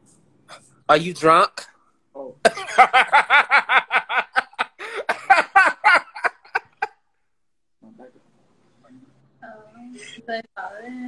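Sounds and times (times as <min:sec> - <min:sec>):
person laughing hard: 0:02.5 - 0:06.9.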